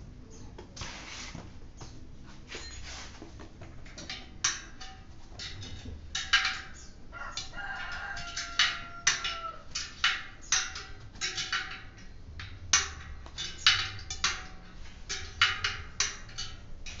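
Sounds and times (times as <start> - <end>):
rubber scraping against rim: 0.8 - 1.9.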